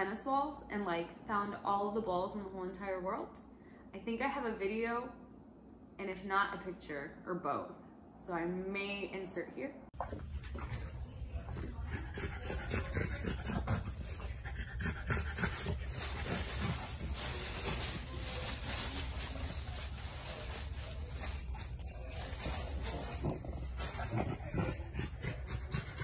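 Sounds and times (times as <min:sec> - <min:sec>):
dog sniffing and breathing hard: 0:11.5 - 0:18.9, 0:22.4 - 0:26.0
plastic bag crinkling: 0:15.4 - 0:24.1.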